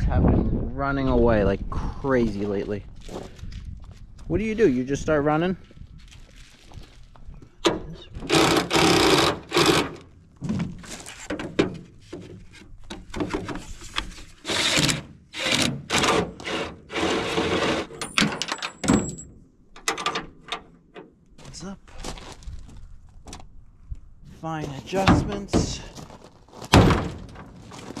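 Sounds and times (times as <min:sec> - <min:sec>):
footsteps crunching on gravel: 0:02.3 - 0:04.3, 0:05.6 - 0:07.5, 0:21.4 - 0:23.3, 0:24.3 - 0:26.8, 0:27.4 - 0:28.0
plastic knocks clunks and scrapes: 0:07.6 - 0:16.4, 0:24.9 - 0:25.9.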